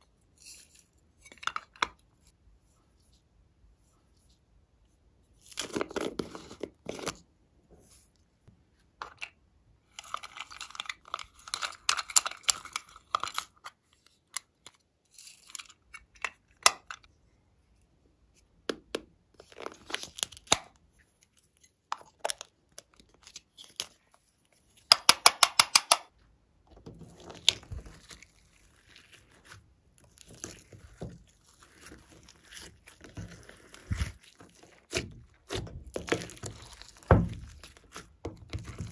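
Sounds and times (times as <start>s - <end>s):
plastic containers clicking and crinkling: 10.0s - 13.7s, 30.0s - 38.9s
slime squishing: 26.8s - 38.9s.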